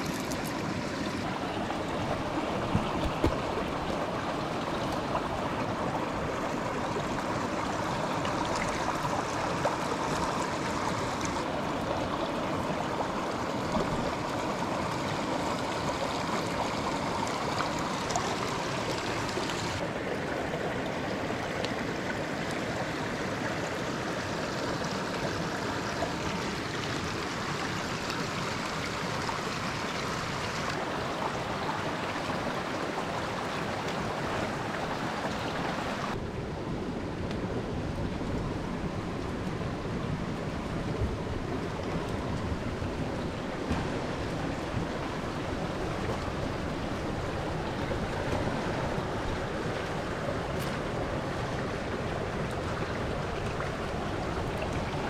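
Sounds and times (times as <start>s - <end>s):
stream rushing over stones: 0.0s - 36.2s, 37.7s - 55.0s.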